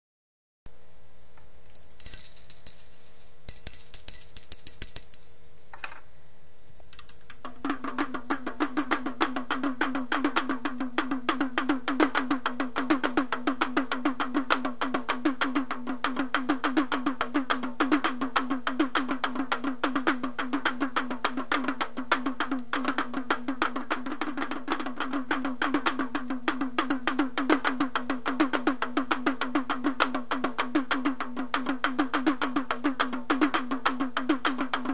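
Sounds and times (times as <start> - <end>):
fast percussion rhythm: 1.7 - 5.8.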